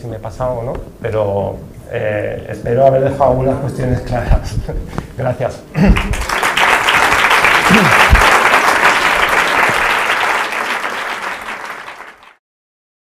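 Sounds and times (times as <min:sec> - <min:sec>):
audience applauding: 0:05.8 - 0:12.4.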